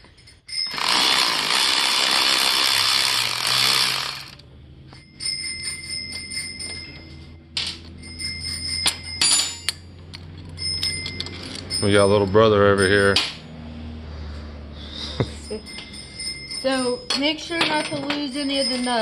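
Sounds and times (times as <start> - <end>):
power ratchet spinning: 0.6 - 4.4
nut and socket clinking on metal: 7.6 - 12.1.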